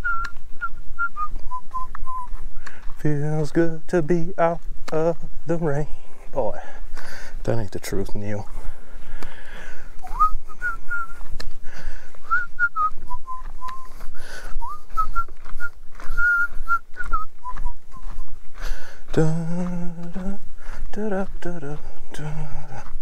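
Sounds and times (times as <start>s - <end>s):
man whistling a tune: 0.0s - 2.4s, 10.0s - 11.4s, 12.2s - 14.0s, 14.6s - 18.2s.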